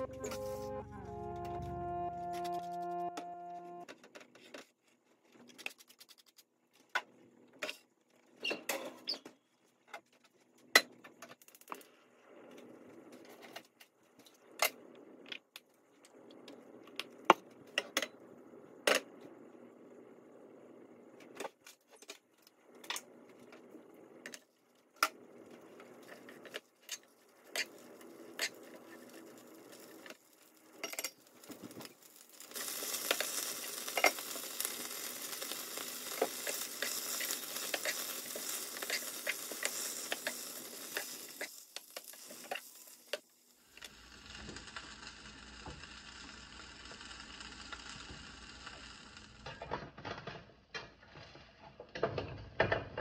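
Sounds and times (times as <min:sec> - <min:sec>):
vegetables sizzling in hot oil: 0:27.6 - 0:49.4
spatula stirring and tapping pan: 0:35.3 - 0:43.2.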